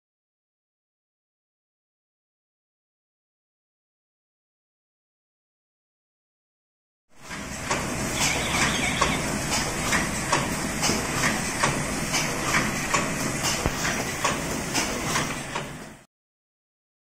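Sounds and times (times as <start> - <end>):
machine clattering with sharp clacks: 7.2 - 16.0.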